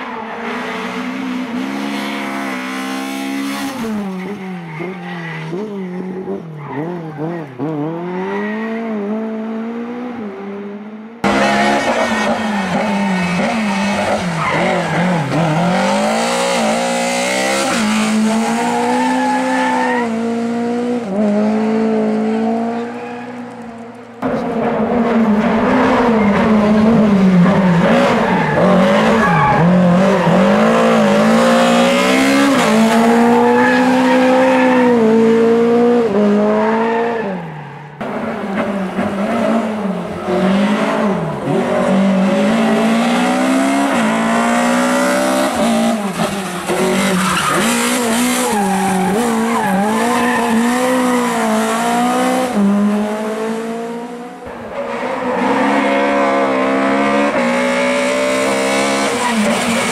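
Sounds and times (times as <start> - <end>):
rally car engine revving: 0.0 - 59.9.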